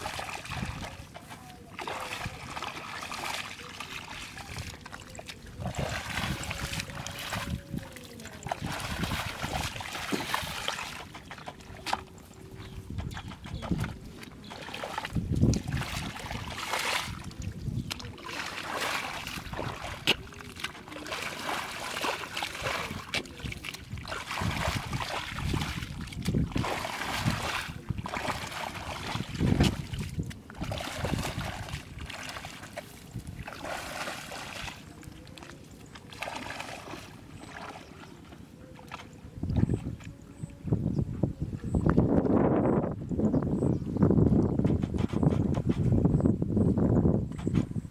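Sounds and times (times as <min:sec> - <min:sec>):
footsteps splashing through muddy water: 0:00.0 - 0:40.9.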